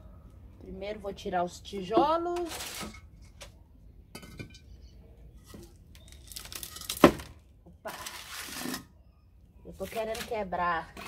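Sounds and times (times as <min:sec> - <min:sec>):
brick scraping on concrete: 0:08.1 - 0:08.9.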